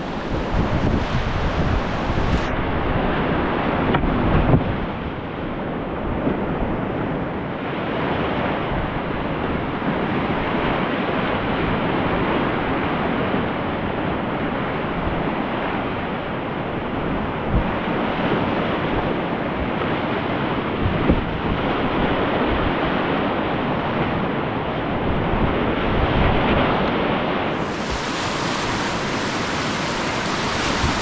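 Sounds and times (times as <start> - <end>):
river rapids rushing: 0.0 - 2.5, 27.4 - 31.0
wind buffeting microphone: 0.0 - 7.4, 20.7 - 31.0.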